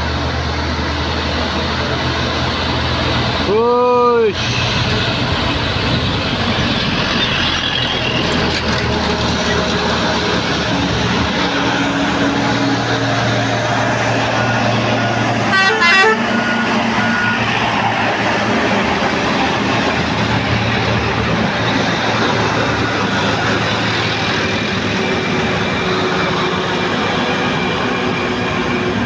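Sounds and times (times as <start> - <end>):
truck diesel engine under load: 0.0 - 29.0
pulsing vehicle horn blast: 15.4 - 17.2.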